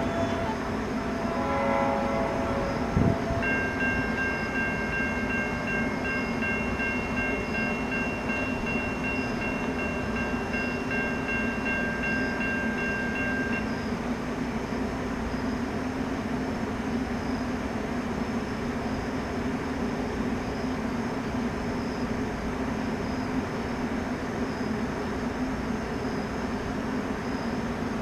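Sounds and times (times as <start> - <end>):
distant train horn: 0.0 - 6.0.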